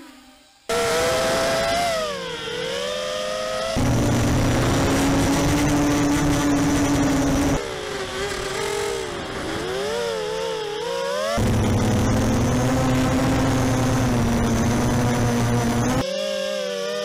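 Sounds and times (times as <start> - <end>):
motor drone with low hum: 0.0 - 17.0
quadcopter motors whining: 0.0 - 17.0.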